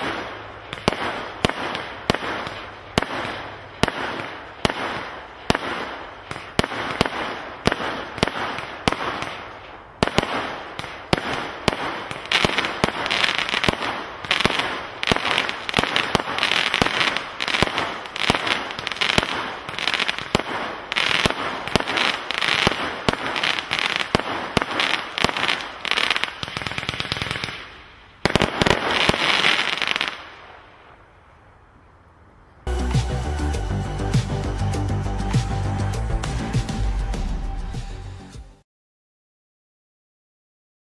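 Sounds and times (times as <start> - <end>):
firework barrage firing: 0.0 - 30.3.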